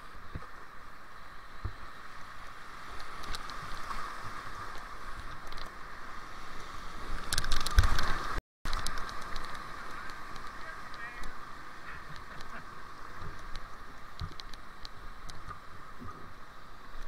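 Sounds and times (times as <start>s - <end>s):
roar of rushing whitewater: 7.0s - 17.0s.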